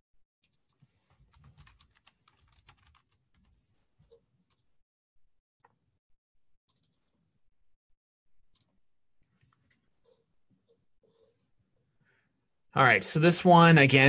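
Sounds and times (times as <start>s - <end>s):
keyboard typing: 0.4s - 4.7s, 6.7s - 7.2s.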